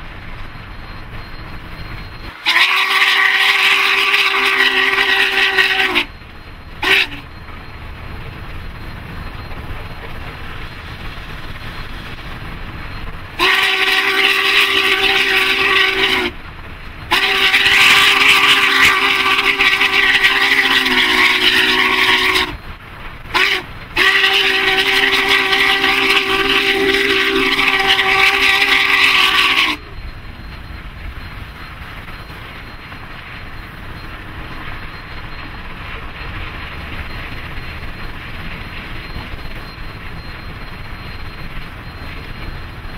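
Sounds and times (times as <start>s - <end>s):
locomotive low rumble: 0.0s - 42.9s
steam locomotive whistle blasts: 2.2s - 6.2s, 6.8s - 7.4s, 13.4s - 16.4s, 17.1s - 22.6s, 23.3s - 30.0s.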